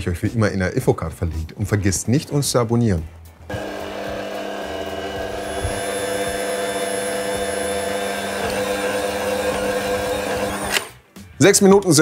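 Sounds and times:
stand mixer running: 3.5s - 10.9s.

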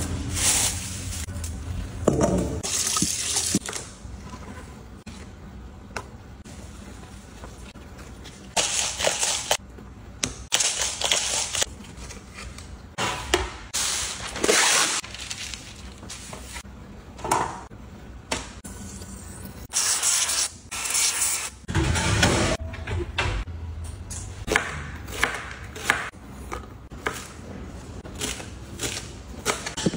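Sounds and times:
baking parchment rustling: 15.0s - 16.6s.

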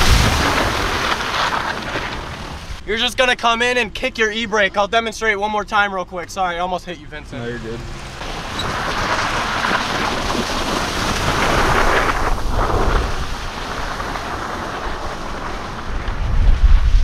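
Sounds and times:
tyre and wind rush: 0.0s - 3.8s, 7.5s - 17.0s
wind rumble on microphone: 8.3s - 17.0s.

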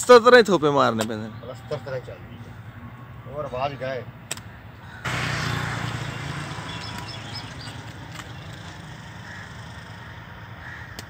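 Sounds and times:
vehicle passing by: 5.0s - 10.8s.

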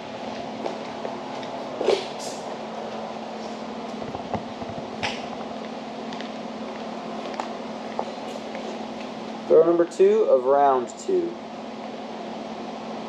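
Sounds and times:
ventilation hum: 0.0s - 13.0s.

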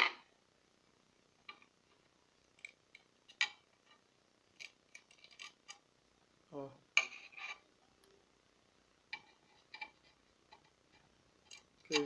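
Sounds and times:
screwdriver clicking and scraping metal: 4.6s - 5.8s.

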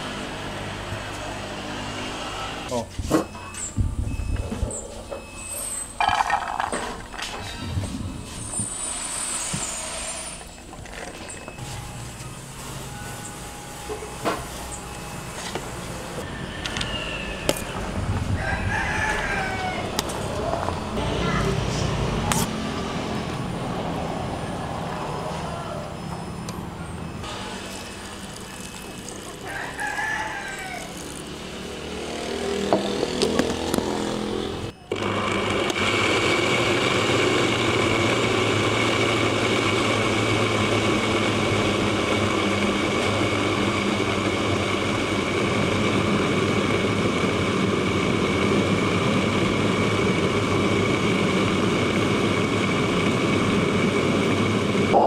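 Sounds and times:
blender motor whining: 6.0s - 11.8s, 27.0s - 55.0s
rooster crowing: 16.2s - 20.7s, 24.4s - 26.0s, 27.8s - 33.1s.

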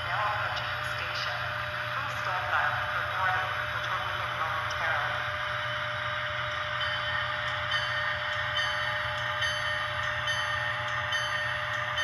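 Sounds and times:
model locomotive running sound: 0.0s - 12.0s.

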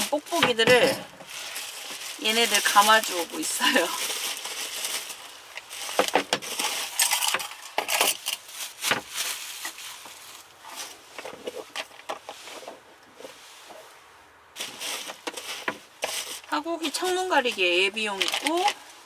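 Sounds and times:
bubble wrap crinkling: 0.0s - 12.0s, 14.6s - 18.9s
metal clinks and knocks: 6.0s - 8.5s.

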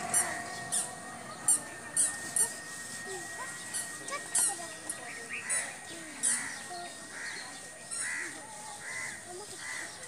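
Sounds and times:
crow cawing: 0.0s - 0.9s, 8.0s - 10.0s.

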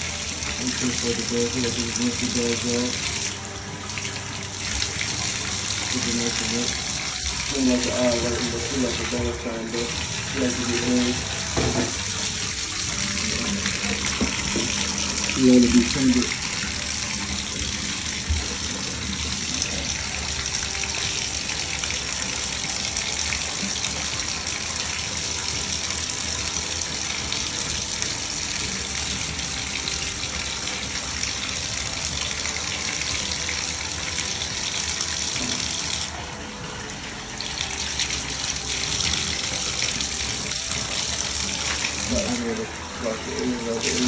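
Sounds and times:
tap water splashing: 0.0s - 24.8s, 31.6s - 36.1s, 37.4s - 42.7s.

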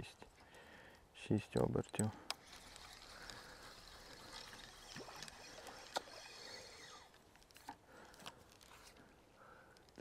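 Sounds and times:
water lapping at bank: 2.4s - 7.2s.

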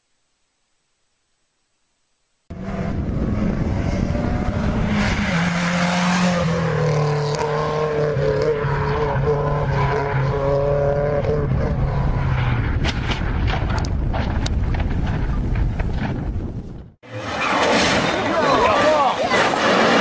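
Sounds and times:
rally car engine at high revs: 2.5s - 12.8s
car crashing into logs: 17.2s - 20.0s.

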